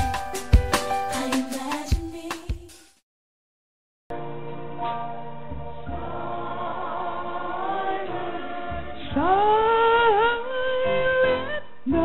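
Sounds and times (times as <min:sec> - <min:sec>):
choir singing a hymn: 0:05.5 - 0:10.6.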